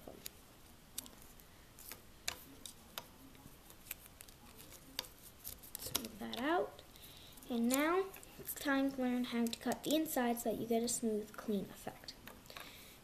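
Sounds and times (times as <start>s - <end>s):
duct tape clicking and crackling: 1.8s - 6.5s.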